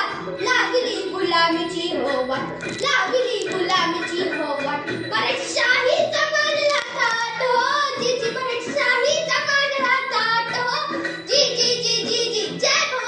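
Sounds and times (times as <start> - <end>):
girl singing: 0.0 - 13.0.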